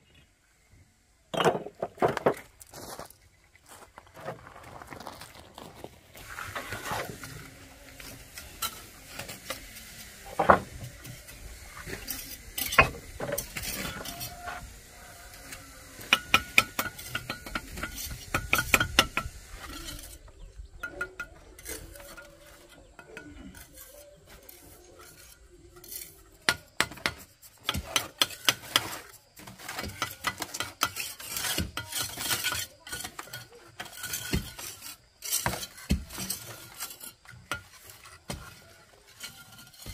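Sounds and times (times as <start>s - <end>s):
metal tool scraping and clinking: 6.3s - 14.8s, 15.4s - 26.3s, 27.6s - 39.9s.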